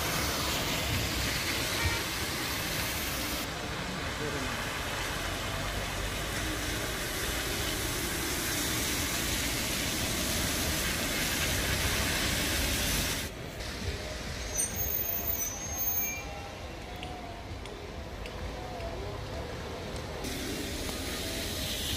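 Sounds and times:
rain hiss: 0:00.0 - 0:15.9, 0:19.6 - 0:21.9
car tyres on wet street: 0:00.0 - 0:21.9.

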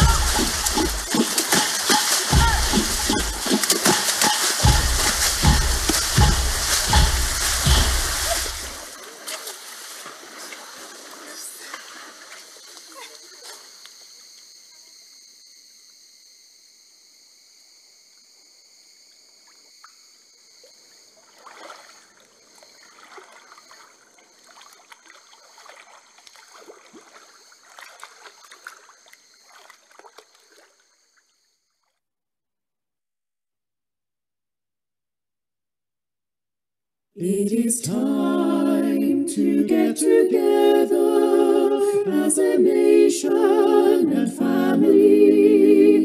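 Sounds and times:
water splashed by hand: 0:00.0 - 0:13.7, 0:21.2 - 0:31.0.

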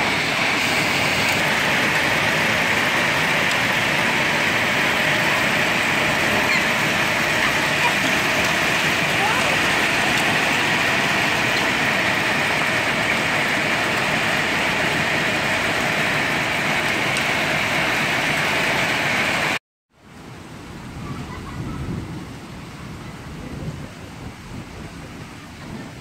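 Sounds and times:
heavy rain and hail: 0:00.0 - 0:19.6.

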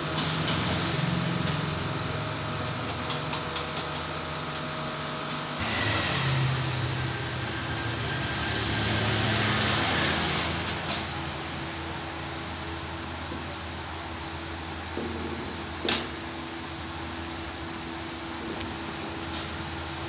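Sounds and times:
machinery humming: 0:04.8 - 0:13.9
hiss: 0:05.6 - 0:11.2.

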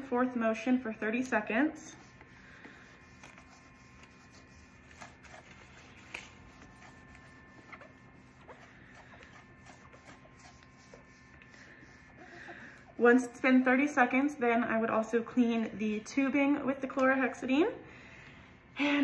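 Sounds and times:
swab scrubbing over box: 0:01.9 - 0:12.2.

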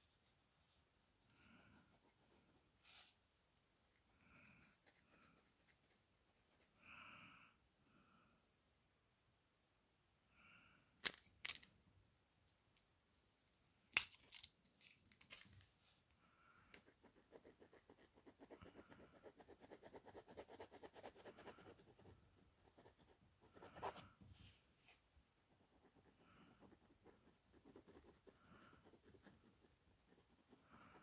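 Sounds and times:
pen scratching on paper: 0:16.8 - 0:24.0.

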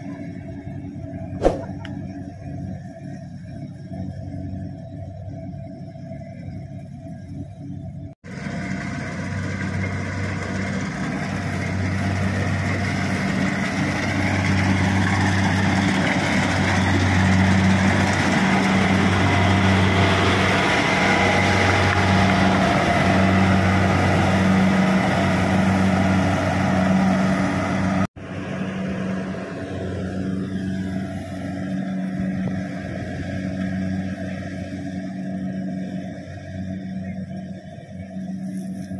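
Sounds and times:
low pulsing hum: 0:00.0 - 0:08.2, 0:28.2 - 0:38.9
diesel engine drone: 0:00.0 - 0:38.9
threshing machinery noise: 0:08.3 - 0:38.9.

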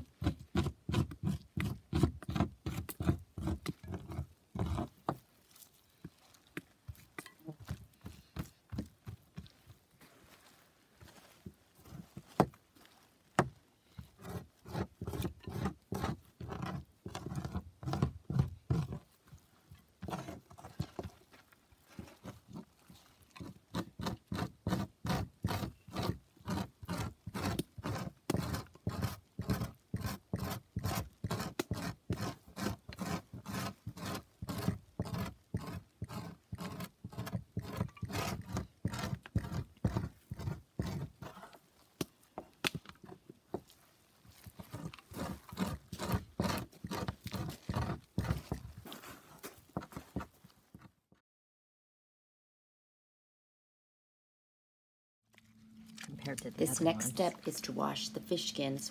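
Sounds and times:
tool scraping fish skin: 0:00.1 - 0:05.2, 0:14.0 - 0:19.1, 0:22.0 - 0:41.6, 0:44.4 - 0:50.3.

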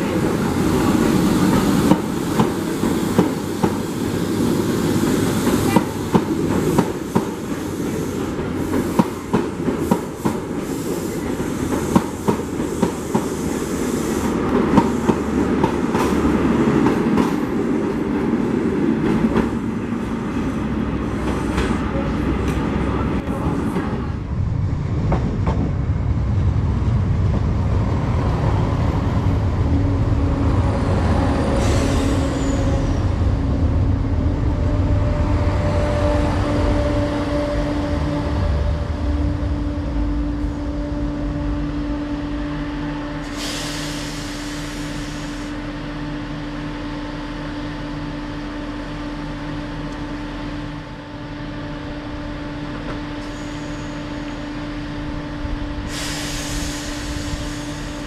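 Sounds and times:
air hiss: 0:06.7 - 0:15.4, 0:43.2 - 0:45.6, 0:55.8 - 0:58.0
heavy rumble: 0:21.7 - 0:43.3
diesel engines humming: 0:25.8 - 0:58.0.

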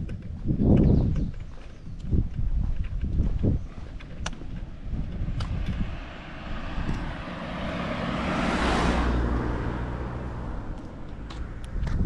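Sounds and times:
car driving past: 0:04.8 - 0:11.8.

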